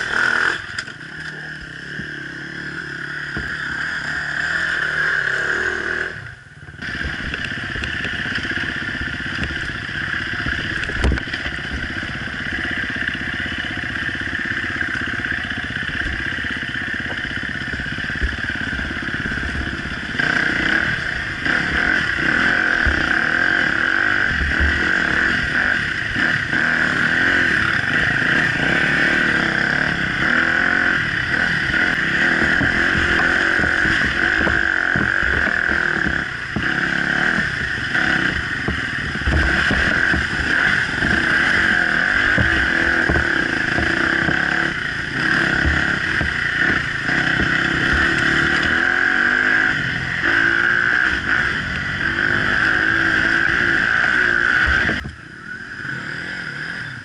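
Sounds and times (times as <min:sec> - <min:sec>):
dirt bike engine revving: 0:00.0 - 0:57.0
bike knocks and clatter over bumps: 0:32.4 - 0:37.0, 0:37.7 - 0:44.6, 0:45.3 - 0:48.8.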